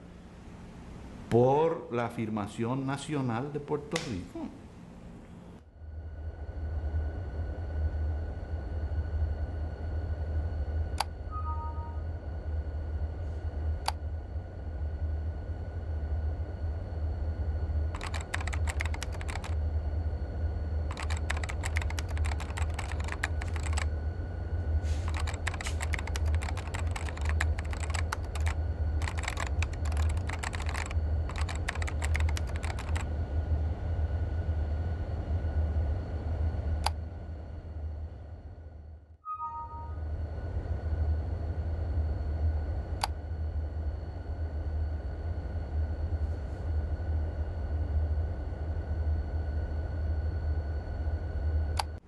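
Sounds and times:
steady low hum: 0.0 - 52.0
rapid keyboard typing: 17.9 - 19.6, 20.9 - 23.9, 25.1 - 33.1.

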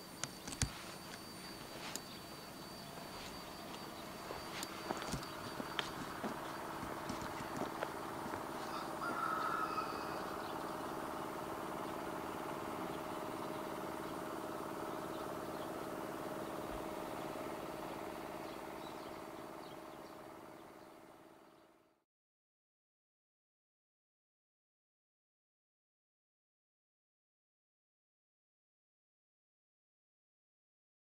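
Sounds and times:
steady mechanical hum: 0.0 - 22.0
bird call: 0.1 - 21.7.

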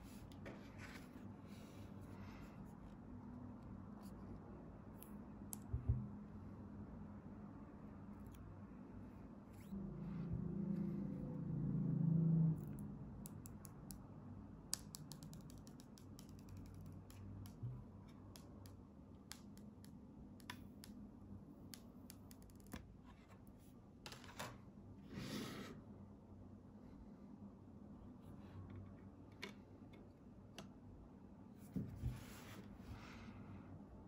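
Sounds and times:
low hum: 5.8 - 13.4.

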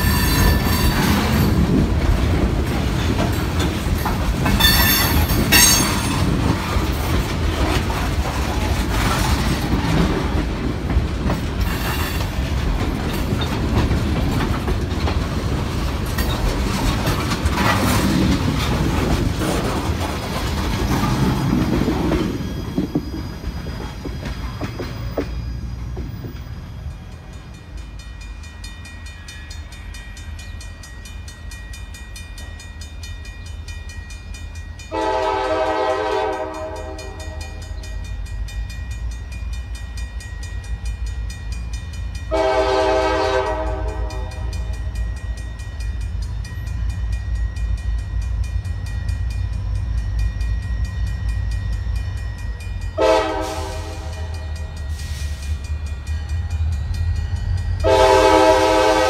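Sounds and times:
train wheels clacking on rail joints: 0.0 - 59.0
locomotive air horn blasts: 34.9 - 37.6, 42.3 - 44.6, 53.0 - 54.4, 57.8 - 59.0.

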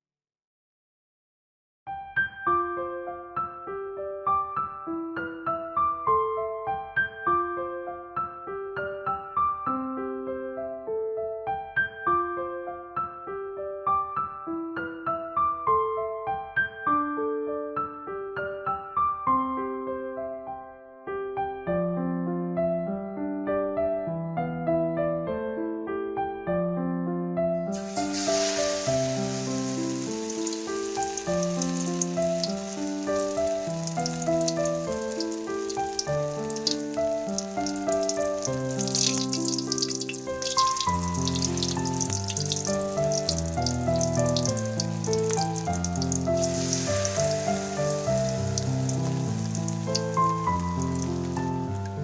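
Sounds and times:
gentle keyboard music: 2.2 - 52.0
fritters sizzling in hot oil: 27.8 - 52.0.

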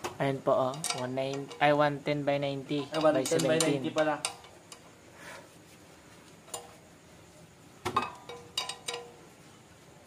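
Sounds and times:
metal tools clinking: 0.7 - 1.7, 2.7 - 4.8, 8.0 - 9.2.

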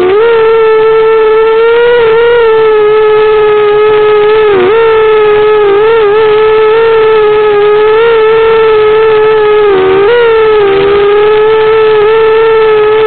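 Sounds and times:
quadcopter motors whining: 0.0 - 13.0.

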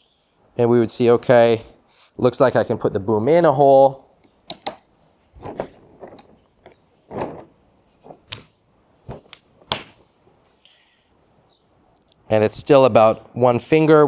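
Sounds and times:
rope rubbing: 5.1 - 10.4.

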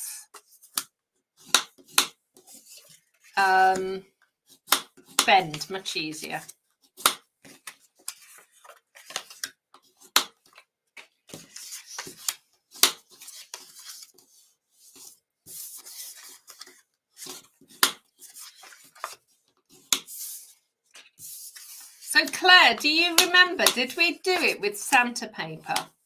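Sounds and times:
bone folder scraping card: 6.8 - 22.1.

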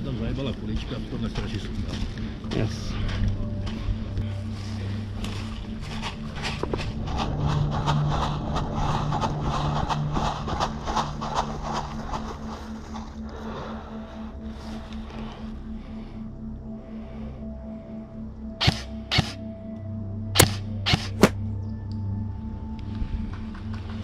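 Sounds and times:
steady low hum: 0.0 - 24.0
quick footsteps: 5.2 - 13.3.

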